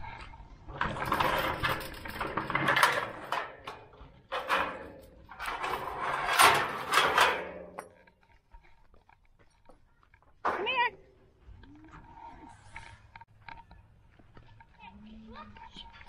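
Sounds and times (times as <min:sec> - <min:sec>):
chain rattling against metal gate: 0:00.7 - 0:08.4.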